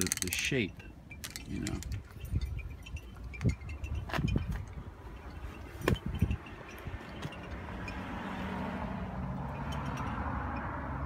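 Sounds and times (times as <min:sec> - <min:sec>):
vehicle driving past: 0:07.3 - 0:11.0.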